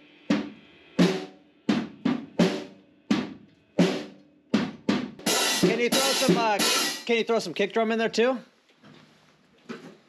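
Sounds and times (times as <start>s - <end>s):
cymbals crashing: 5.2s - 7.1s
drum strokes ringing: 5.2s - 7.2s.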